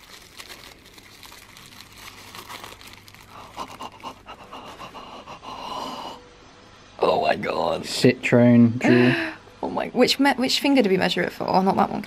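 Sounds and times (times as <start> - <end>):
wrapping rustling and crinkling: 0.0 - 4.4.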